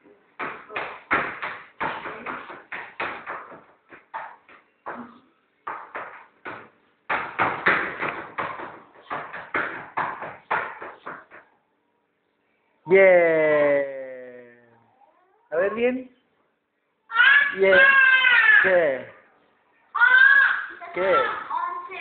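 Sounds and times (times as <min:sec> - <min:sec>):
shoes stamping on a tabletop: 0:00.4 - 0:11.5.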